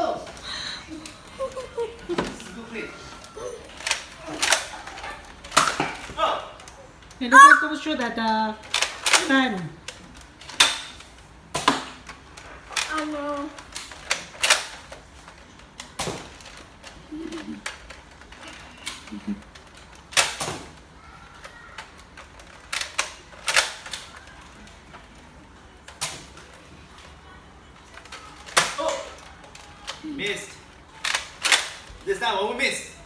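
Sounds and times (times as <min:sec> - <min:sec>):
child murmuring: 0:07.3 - 0:07.8.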